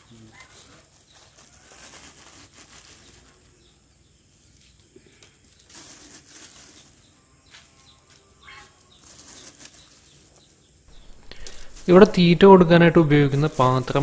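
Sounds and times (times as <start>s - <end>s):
plastic bag rustling: 0.2s - 4.8s, 5.4s - 7.2s, 8.2s - 14.0s
salt scattering into tubs: 10.9s - 14.0s.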